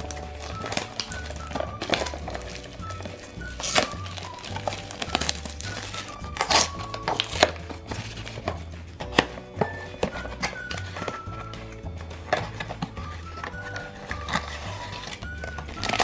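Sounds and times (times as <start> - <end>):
cardboard box tearing: 0.0 - 8.6
background music: 0.0 - 16.0
paper crinkling: 0.0 - 16.0.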